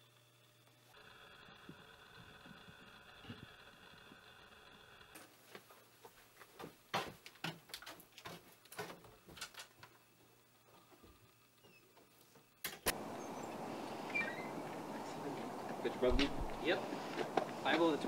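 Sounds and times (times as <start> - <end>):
footsteps across a room: 5.2 - 9.4.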